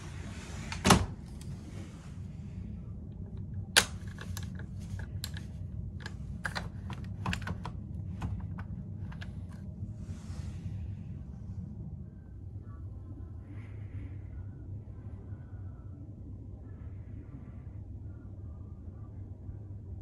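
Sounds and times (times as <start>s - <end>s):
steady low hum: 0.0s - 20.0s
metal latch clicking and rattling: 3.7s - 9.6s.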